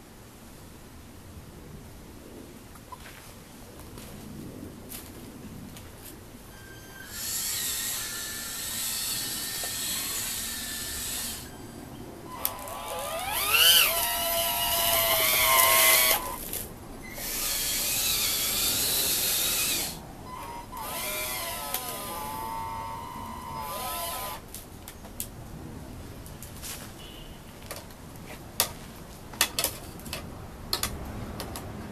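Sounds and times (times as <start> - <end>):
electric hydraulic pump whining: 6.6 - 11.6, 12.3 - 16.4, 17.0 - 24.4.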